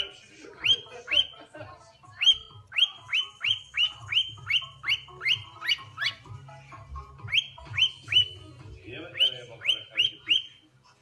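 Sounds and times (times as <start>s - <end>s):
cockatiel whistling: 0.6s - 1.4s, 2.2s - 6.3s, 7.2s - 8.4s, 9.1s - 10.6s.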